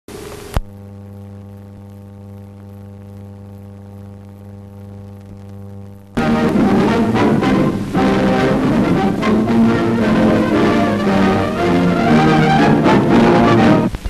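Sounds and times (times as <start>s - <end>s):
low electrical hum: 0.1s - 14.0s
faint ticks: 0.2s - 6.2s
orchestral music with brass: 6.2s - 13.9s.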